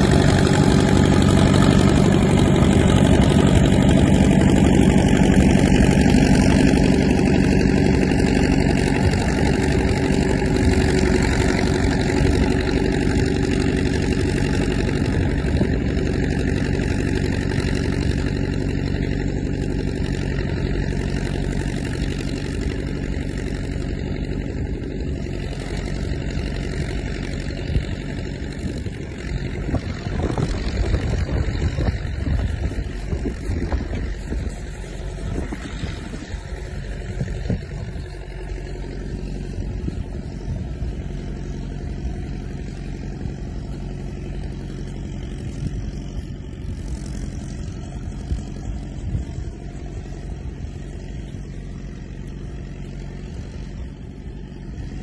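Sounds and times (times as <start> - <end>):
vehicle engine under load: 0.0 - 55.0.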